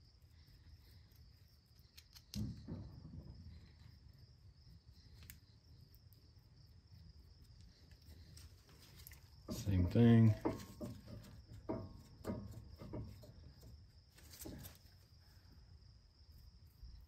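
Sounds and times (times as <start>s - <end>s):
handling metal parts: 8.4s - 13.6s.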